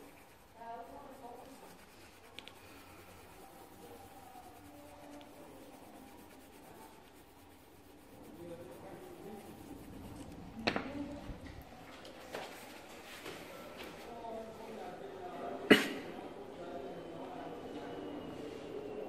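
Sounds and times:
pencil scratching on paper: 0.0s - 10.6s.

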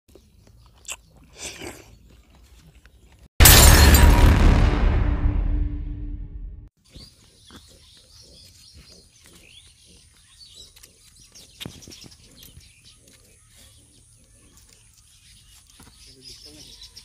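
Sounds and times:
birds chirping: 6.8s - 17.0s.

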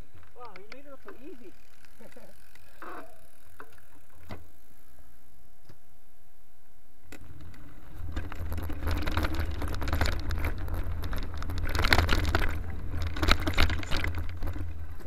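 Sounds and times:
bike chain and frame rattling: 0.0s - 4.9s, 7.1s - 15.0s
bike tyres crunching on dirt: 0.0s - 5.2s, 7.0s - 15.0s.

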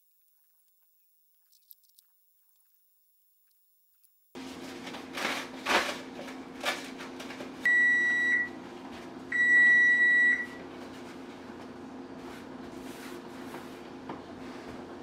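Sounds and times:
paper towels rustling: 4.4s - 7.6s, 10.6s - 15.0s
kitchen appliance beeps: 7.6s - 8.6s, 9.3s - 10.6s.

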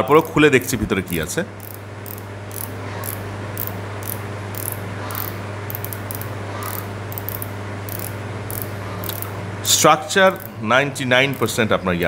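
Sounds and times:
ratchet-like reel clicks: 0.0s - 0.4s, 1.1s - 9.3s, 10.3s - 10.6s, 11.3s - 11.6s.

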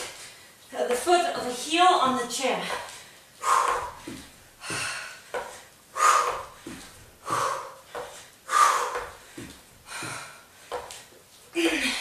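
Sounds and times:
woman breathing out hard: 2.8s - 5.3s, 5.9s - 10.9s
sneakers landing on wooden step: 3.6s - 5.6s, 6.2s - 8.2s, 8.8s - 11.0s.

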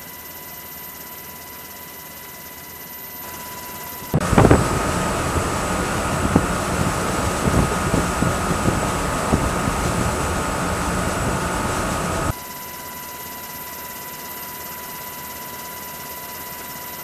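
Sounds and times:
faint high whine: 0.0s - 17.0s
boat engine noise: 4.2s - 12.3s
rushing wind: 4.2s - 12.3s
steady hiss with faint tones: 4.2s - 12.3s
wind thumps on microphone: 4.2s - 12.3s.

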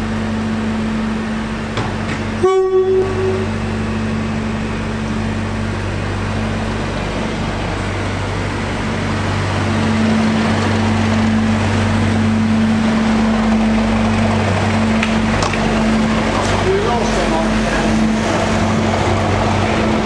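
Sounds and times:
diesel locomotive engine drone: 0.0s - 20.0s.

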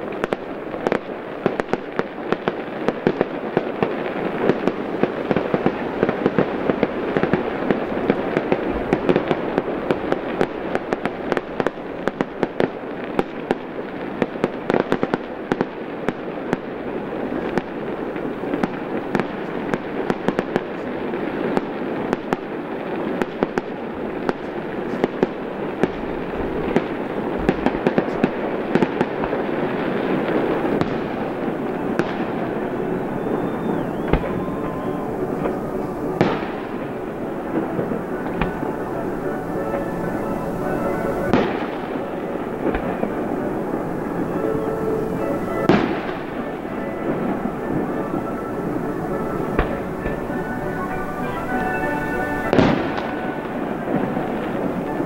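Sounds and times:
fireworks crackling: 0.0s - 55.0s.

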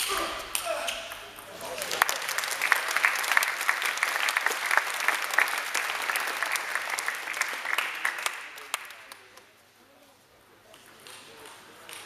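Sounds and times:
spectators applauding: 1.2s - 9.4s.

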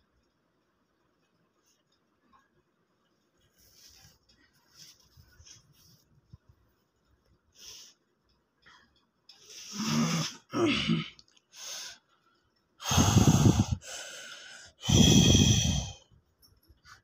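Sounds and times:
breathy gasps: 12.8s - 16.0s
person breathing heavily: 12.8s - 16.1s.

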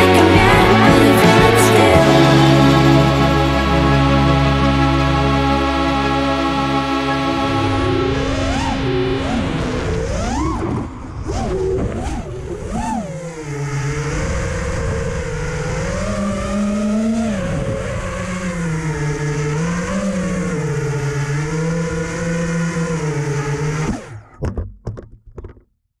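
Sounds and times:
drone motors whining: 0.0s - 24.4s
scattered knocks: 24.4s - 25.6s.

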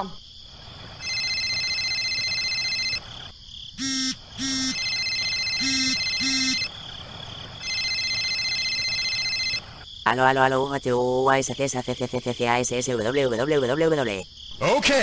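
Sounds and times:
phone ringtone: 1.0s - 6.7s, 7.6s - 9.8s.

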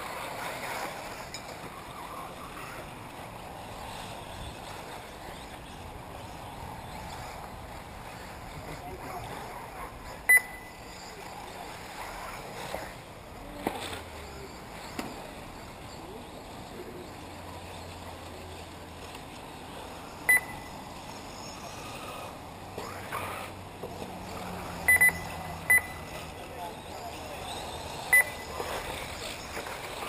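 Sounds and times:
faint whine of rc cars racing: 0.0s - 30.0s
short high electronic beeps: 10.3s - 10.8s, 20.3s - 20.8s, 24.9s - 26.0s, 28.1s - 28.5s.

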